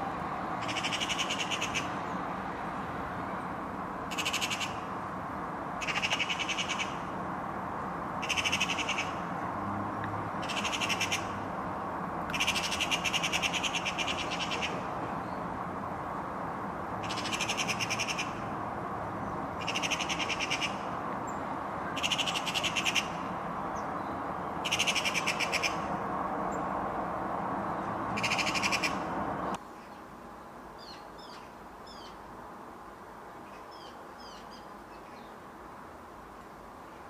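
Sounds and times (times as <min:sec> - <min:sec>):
magpie chattering: 0:00.6 - 0:01.9, 0:05.8 - 0:06.9, 0:08.2 - 0:09.1, 0:10.4 - 0:11.3, 0:12.3 - 0:14.8, 0:17.0 - 0:18.3, 0:19.6 - 0:20.8, 0:22.0 - 0:23.1, 0:24.6 - 0:25.8.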